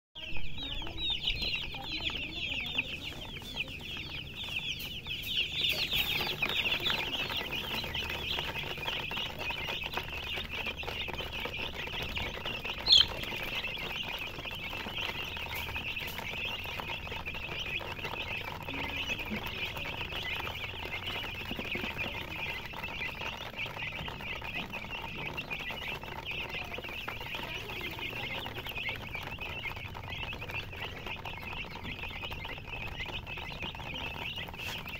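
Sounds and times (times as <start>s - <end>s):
chicks peeping: 0.2s - 34.9s.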